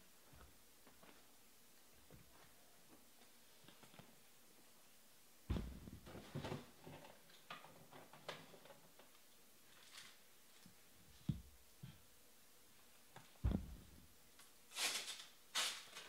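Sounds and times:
dull thump: 5.5 - 6.1, 13.4 - 14.0
objects being moved and set down: 5.5 - 9.1, 13.4 - 14.0.

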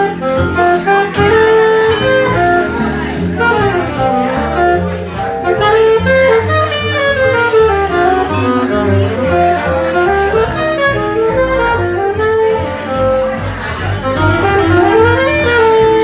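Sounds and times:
bass line: 0.0 - 16.0
jazz band playing: 0.0 - 16.0
saxophone melody: 0.0 - 16.0.

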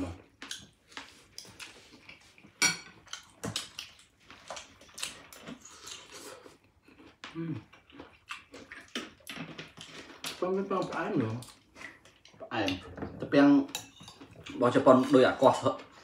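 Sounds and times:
cutlery clinking on dishes: 2.6 - 3.7, 13.7 - 14.4.

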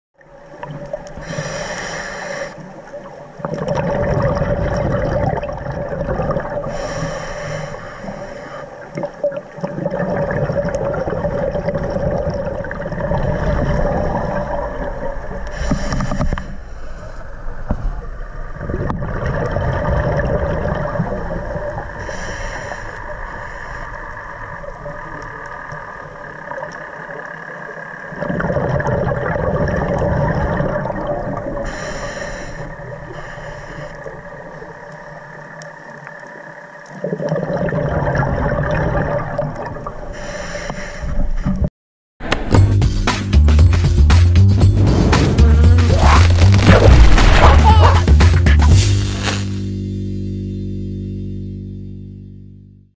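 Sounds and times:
hissing regulator inhalations: 1.2 - 2.7, 6.7 - 8.9, 15.4 - 17.3, 22.0 - 24.2, 31.6 - 34.2
gurgle of exhaled bubbles: 3.0 - 7.2, 8.8 - 15.9, 17.5 - 26.8, 28.1 - 33.3, 36.9 - 40.1, 44.8 - 48.1.

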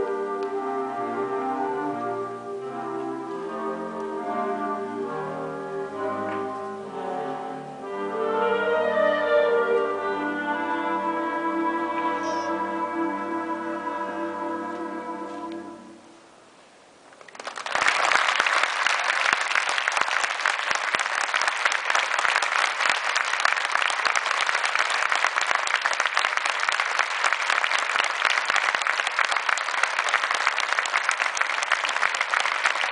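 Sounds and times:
audience applause: 17.2 - 32.9.

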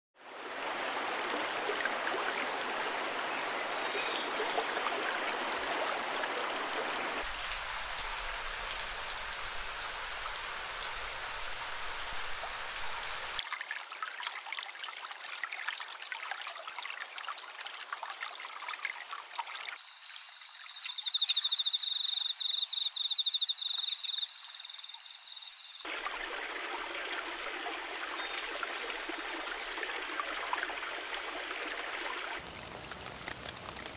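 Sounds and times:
stream rushing over rocks: 0.2 - 13.5, 25.9 - 33.9.

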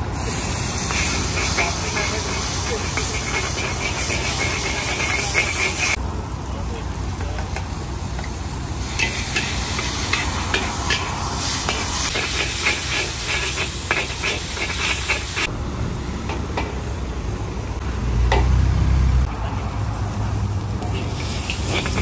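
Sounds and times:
noodles sizzling in a wok: 0.2 - 6.0, 7.7 - 15.5, 19.9 - 22.0
metal spatula scraping a wok: 0.9 - 6.0, 9.0 - 15.5, 20.9 - 22.0.

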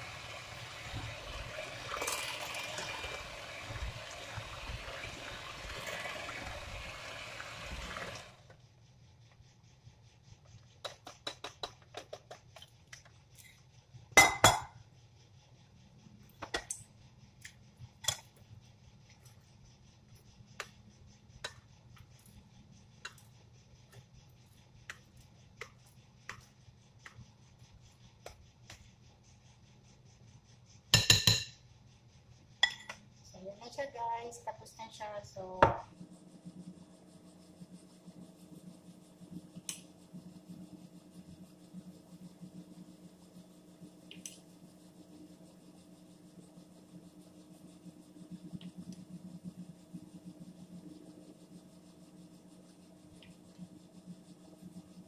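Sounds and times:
electric hand mixer running: 0.0 - 8.4
spoon tapping glass bowl: 31.0 - 31.5.

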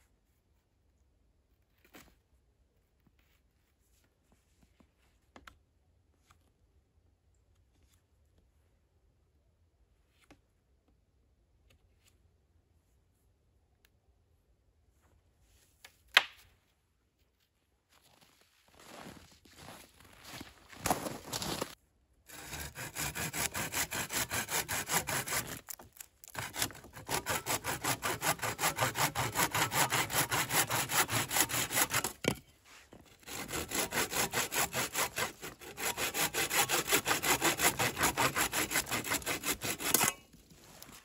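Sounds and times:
hand saw cutting branch: 22.3 - 32.4, 33.0 - 41.0.

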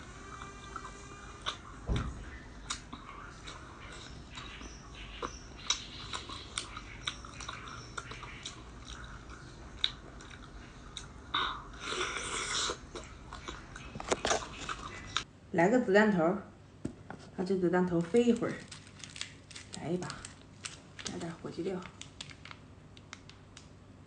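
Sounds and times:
biting and chewing: 0.2 - 15.3, 18.2 - 21.2.

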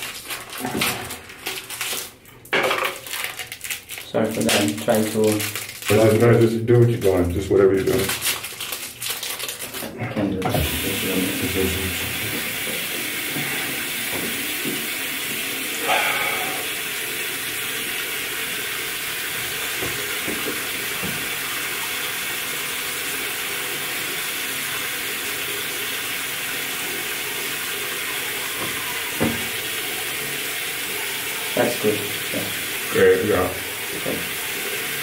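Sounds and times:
tap running into sink: 10.4 - 15.5, 19.2 - 21.6, 27.4 - 35.0
toothbrush brushing teeth: 15.7 - 16.9
knock: 28.6 - 29.5.

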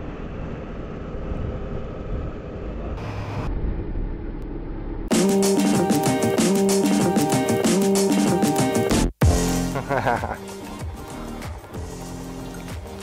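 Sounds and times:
wind rumble: 0.0 - 5.1
loud electronic music: 5.1 - 13.0.

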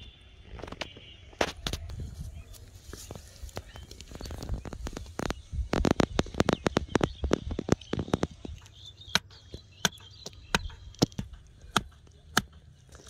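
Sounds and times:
club knocking wooden stake: 8.6 - 12.6.

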